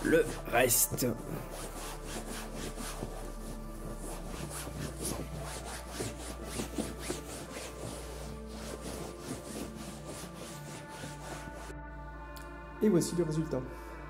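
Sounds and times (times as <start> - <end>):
cloth rubbing on sofa fabric: 0.0 - 11.7.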